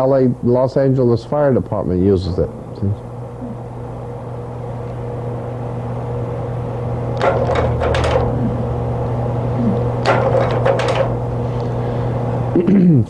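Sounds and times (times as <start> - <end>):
low electrical hum: 0.0 - 13.0
sharp clicks and knocks: 7.2 - 8.4, 10.0 - 11.2.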